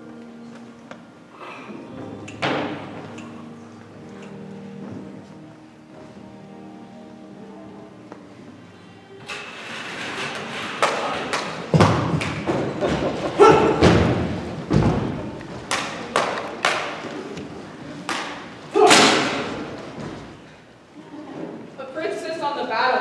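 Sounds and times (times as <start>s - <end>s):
thumps on a stage with echo: 11.4s - 17.1s.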